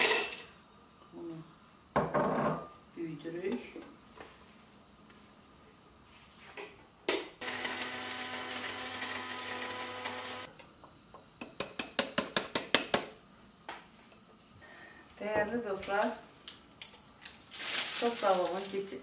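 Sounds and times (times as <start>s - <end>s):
electric blade grinder running: 7.4s - 10.5s.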